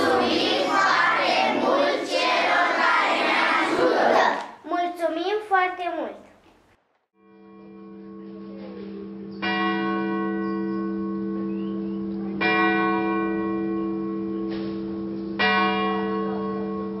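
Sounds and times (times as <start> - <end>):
church bell tolling: 7.3 - 17.0.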